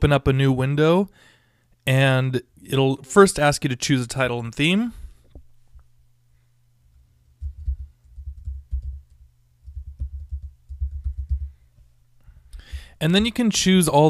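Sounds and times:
typing on computer keyboard: 0:07.5 - 0:11.5.

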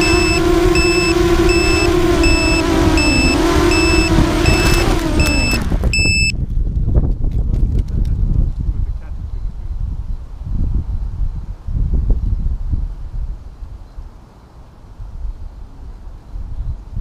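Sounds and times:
high electronic beeps: 0:00.0 - 0:06.3
quadcopter motors whining: 0:00.0 - 0:06.3.

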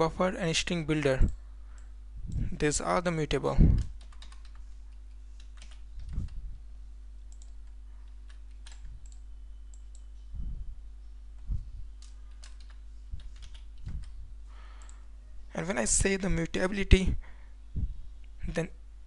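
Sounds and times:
low electrical hum: 0:00.0 - 0:19.0
keyboard typing: 0:03.6 - 0:06.4, 0:07.2 - 0:10.1, 0:11.4 - 0:14.2
soft low thumps: 0:11.4 - 0:11.9, 0:17.7 - 0:18.0.

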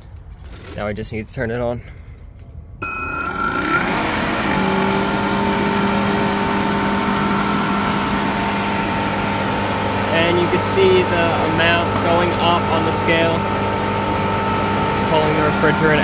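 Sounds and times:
machine motor humming: 0:02.8 - 0:16.0.

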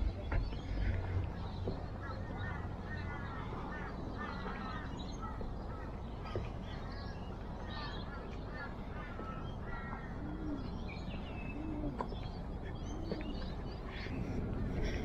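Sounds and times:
birds chattering: 0:00.0 - 0:15.0
wind rumble on microphone: 0:10.0 - 0:15.0.

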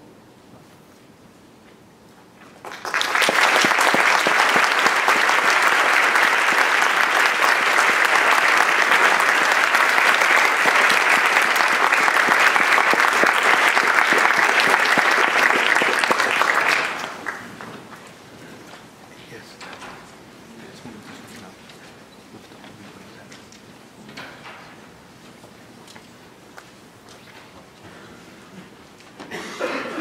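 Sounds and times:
audience applauding: 0:02.6 - 0:18.8.

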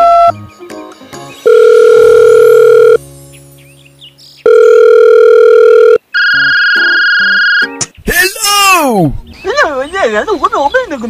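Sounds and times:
keypad beep: 0:00.0 - 0:00.3, 0:01.5 - 0:03.0, 0:04.5 - 0:07.7
telephone ringback tone: 0:01.4 - 0:03.0, 0:04.4 - 0:07.7.

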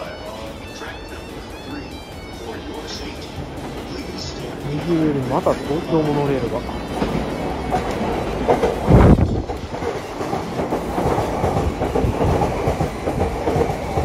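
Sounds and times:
low train rumble: 0:00.0 - 0:14.0
train wheels clacking: 0:00.7 - 0:14.0.

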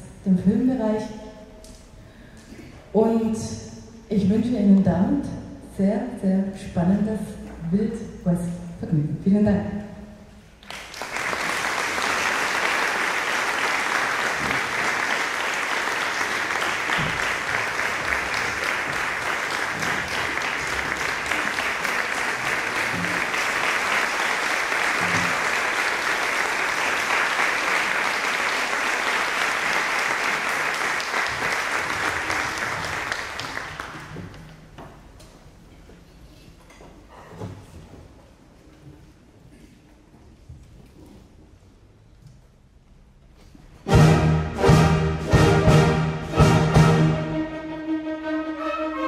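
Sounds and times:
audience applauding: 0:10.6 - 0:34.4.

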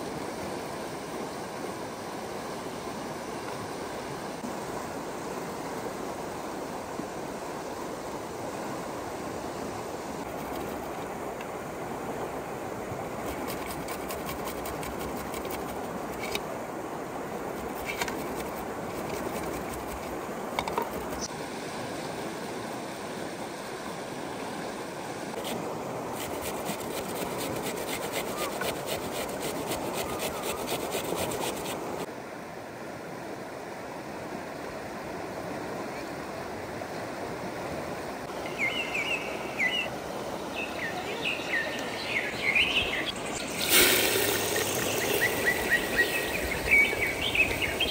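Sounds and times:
steady outdoor noise: 0:00.0 - 0:47.9
short bird chirps: 0:40.8 - 0:47.9
fast fine ticking: 0:43.5 - 0:47.9.

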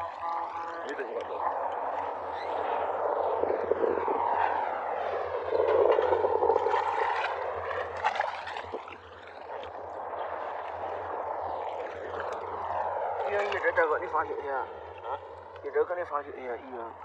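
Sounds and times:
water sloshing around wading person: 0:04.2 - 0:13.8.

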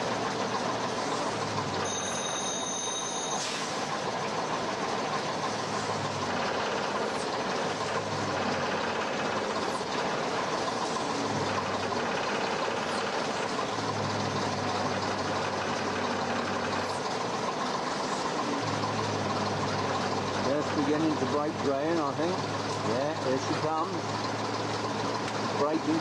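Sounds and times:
crane lorry engine running: 0:00.0 - 0:26.0.

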